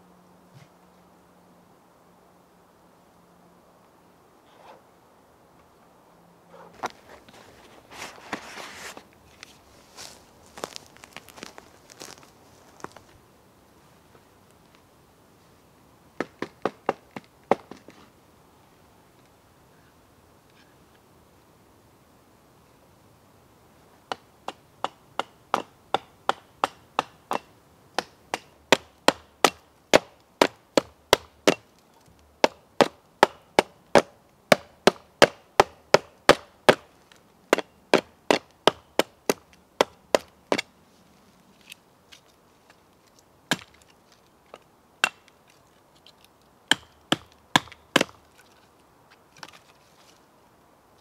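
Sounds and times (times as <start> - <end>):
hatchet chopping a log: 24.1 - 31.7, 32.4 - 36.9, 37.5 - 40.7, 43.5 - 43.8, 45.0 - 45.3, 46.7 - 48.2.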